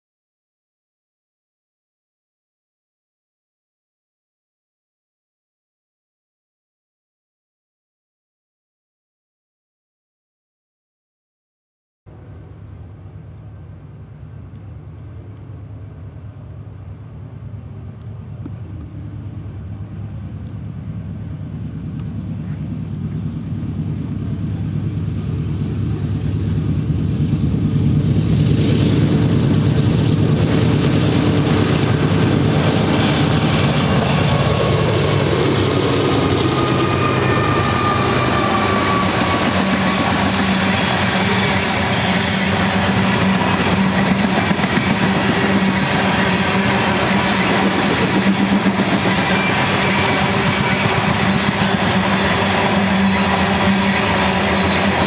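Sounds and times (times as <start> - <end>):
diesel locomotive engines droning: 12.1 - 55.0
freight cars rumbling on rails: 12.1 - 55.0
thin squealing tones: 35.9 - 44.0.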